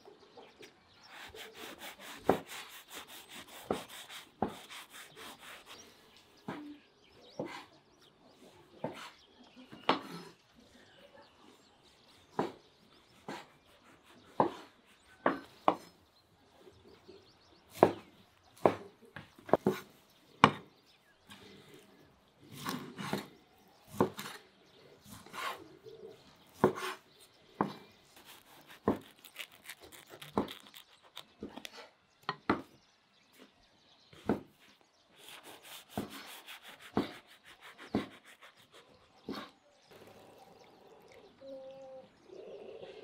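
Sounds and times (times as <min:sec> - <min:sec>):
knife chopping on wooden board: 0:14.3 - 0:15.9, 0:18.6 - 0:18.9, 0:23.9 - 0:24.4, 0:26.6 - 0:27.0, 0:27.6 - 0:31.5, 0:35.3 - 0:37.2, 0:37.8 - 0:38.3.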